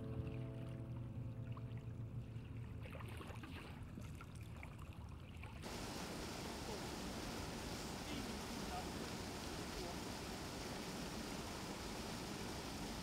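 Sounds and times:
creek rushing over rocks: 5.6 - 13.0.

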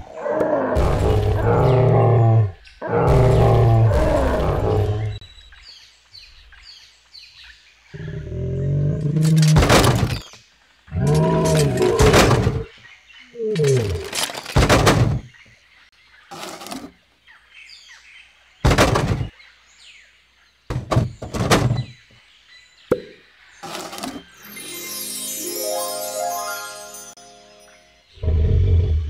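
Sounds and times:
toys dropping into bin: 13.9 - 15.2.

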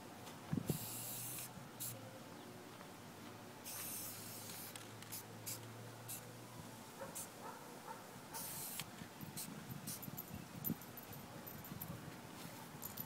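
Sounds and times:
spray paint can hissing: 0.7 - 2.0, 3.6 - 6.3, 8.4 - 10.0.

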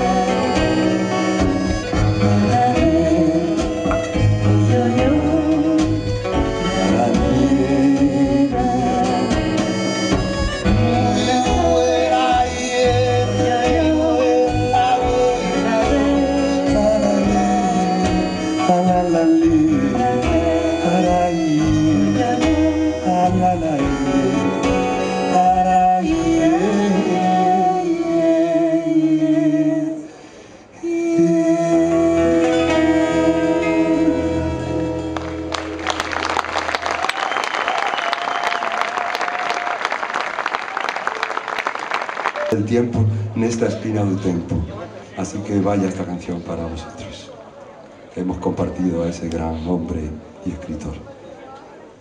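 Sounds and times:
plucked strings: 0.0 - 26.6
wordless singing: 0.0 - 30.1.

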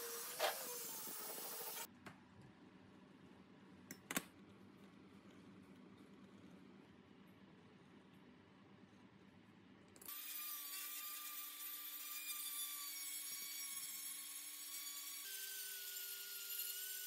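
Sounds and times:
die grinder whining: 0.0 - 1.9.

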